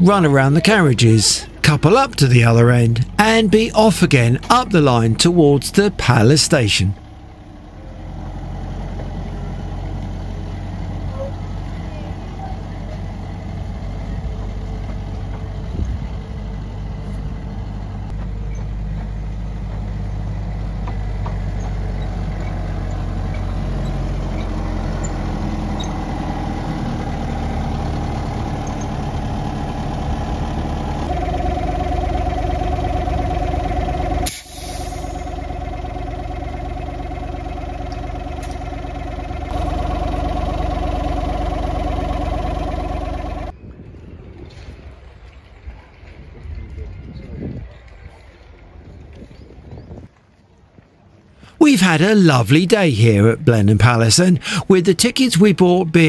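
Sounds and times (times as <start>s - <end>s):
small diesel locomotive engine: 0.0s - 43.6s, 54.3s - 56.0s
steady high whine: 31.1s - 43.5s.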